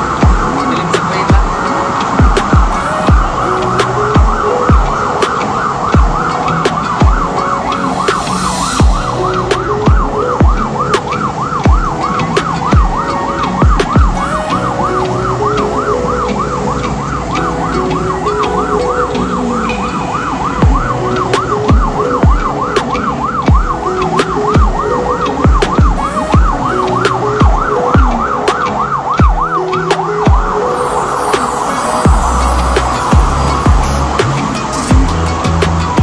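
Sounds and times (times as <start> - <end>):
siren yelping: 0.0 - 36.0
truck road and engine noise: 0.0 - 36.0
low thumps: 32.1 - 36.0.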